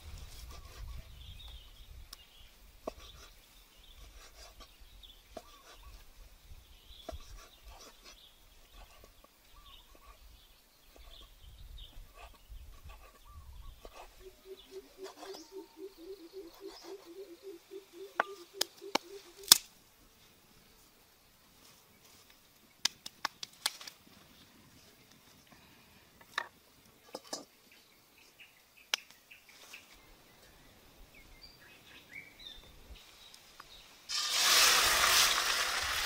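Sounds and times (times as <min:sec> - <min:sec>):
bird chirps: 0:08.1 - 0:19.6
low pulsing animal call: 0:13.9 - 0:19.4.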